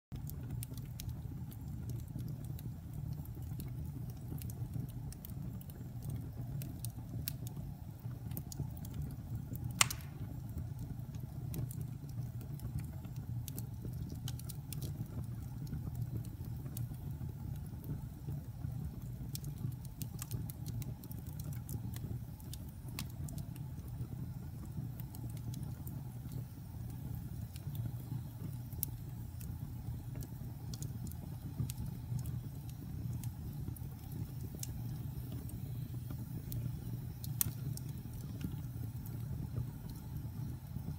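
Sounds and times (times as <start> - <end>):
wood fire crackling and popping: 0.1 - 40.9.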